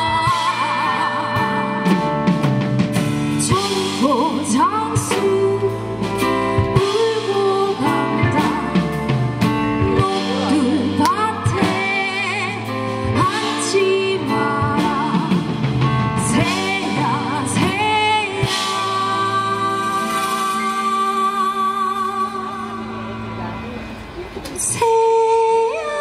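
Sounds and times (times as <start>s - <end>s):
woman singing with vibrato: 0.0s - 2.4s, 3.4s - 23.3s, 24.6s - 26.0s
live band with guitars drums keyboard: 0.0s - 26.0s.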